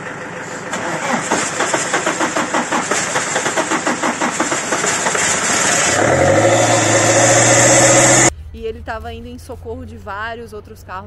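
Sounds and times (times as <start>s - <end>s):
diesel engine cranking: 0.0s - 8.3s
diesel engine running: 0.0s - 11.0s.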